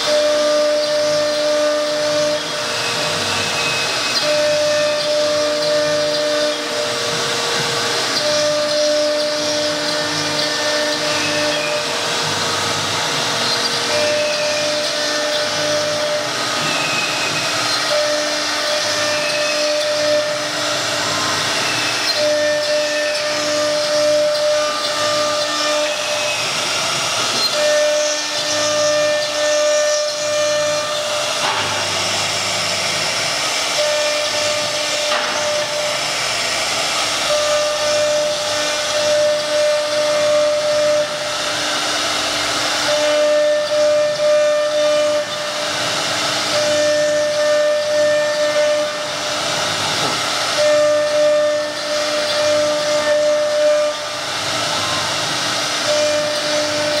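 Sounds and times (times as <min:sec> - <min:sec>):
wood router cutting: 0:00.0 - 0:57.0
whining tone: 0:42.6 - 0:57.0.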